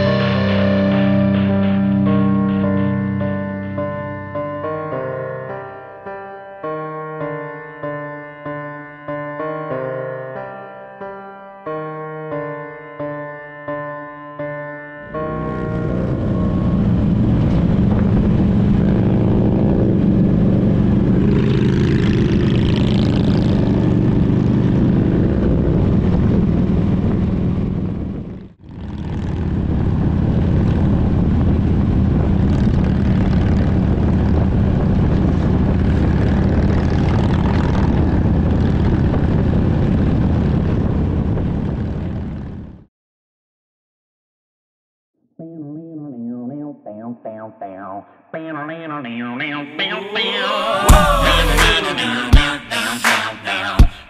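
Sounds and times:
motorcycle engine running: 0:15.1 - 0:40.4.

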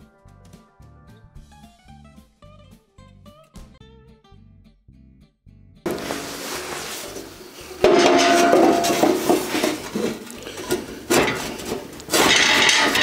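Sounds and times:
steel hopper scraping and clanking: 0:05.9 - 0:13.0
ringing metallic clatter: 0:07.8 - 0:10.0, 0:11.2 - 0:13.0.

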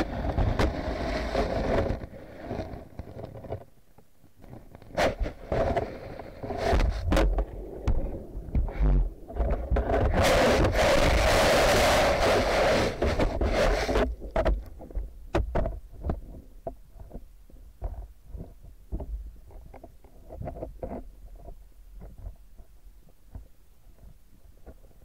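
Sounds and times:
sharp clicks and knocks: 0:13.0 - 0:24.9.

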